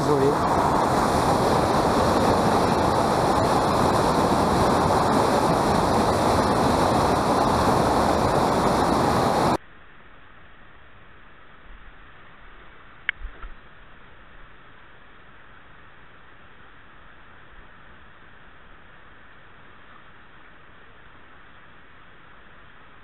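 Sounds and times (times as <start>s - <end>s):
whitewater pouring over rocks: 0.0s - 9.6s
faint hiss: 0.0s - 23.0s.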